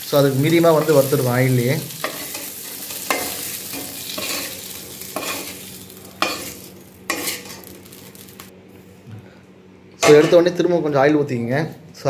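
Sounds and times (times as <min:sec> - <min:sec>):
oil sizzling: 0:00.0 - 0:08.5.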